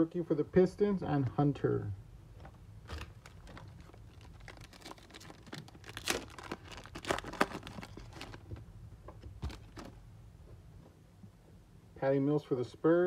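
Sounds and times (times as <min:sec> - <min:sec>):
card pack wrapper crinkling and tearing: 0:02.8 - 0:08.6, 0:09.4 - 0:10.0
cards rustling in hands: 0:02.8 - 0:08.6.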